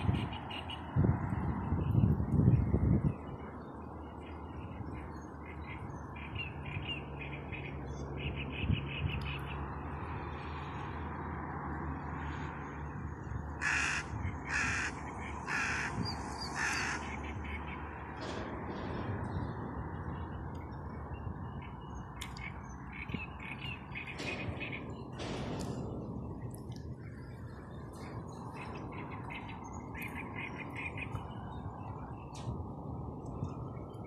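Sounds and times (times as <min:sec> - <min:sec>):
crow cawing: 0:13.6 - 0:17.1.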